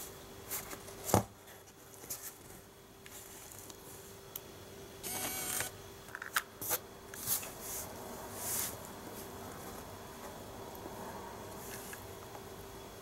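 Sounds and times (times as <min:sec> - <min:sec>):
camera zoom motor whirring: 0:05.0 - 0:05.8.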